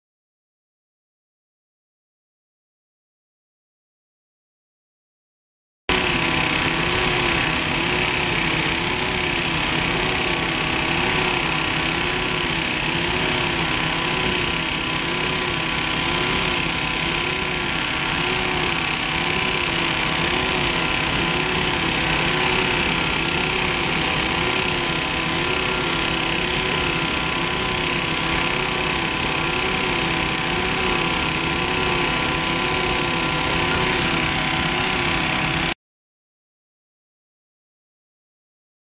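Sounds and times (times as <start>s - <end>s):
compressor hum wavering: 5.9s - 35.7s.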